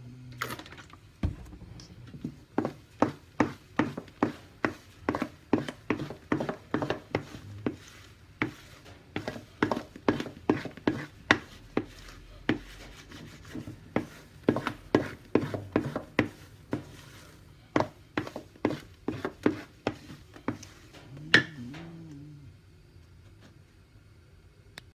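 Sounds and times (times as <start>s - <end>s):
wooden spatula scraping steel bowl: 4.2s - 21.0s.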